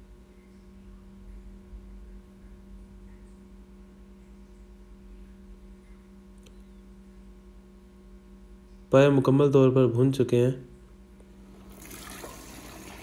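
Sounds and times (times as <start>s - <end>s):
faint electrical hum: 0.0s - 13.0s
faint click: 6.4s - 6.7s.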